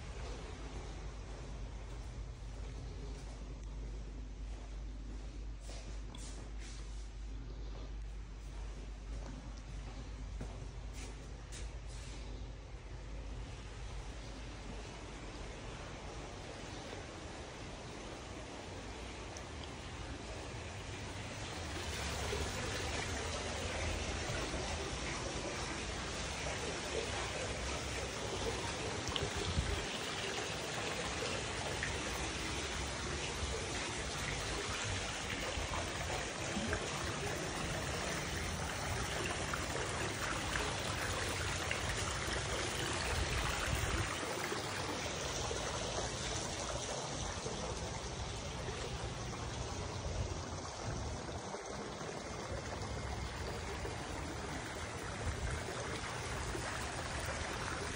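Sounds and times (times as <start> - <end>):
waterfall spilling into pool: 14.2 - 57.9.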